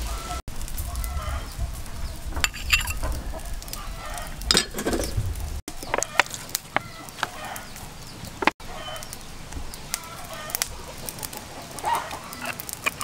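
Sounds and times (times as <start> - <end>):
chickens clucking: 0.0 - 13.0
metal spoon scraping ceramic saucer: 2.4 - 3.0, 12.4 - 13.0.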